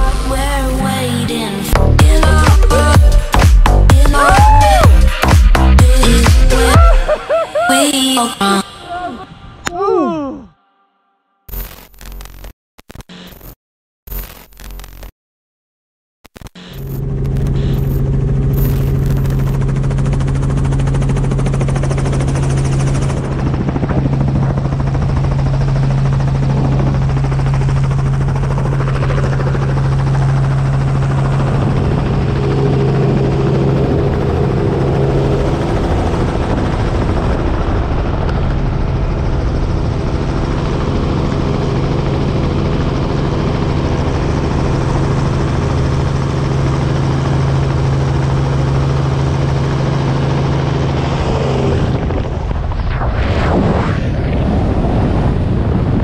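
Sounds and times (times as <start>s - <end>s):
helicopter rotor and engine drone: 16.6s - 53.0s
wind rushing: 51.3s - 56.0s.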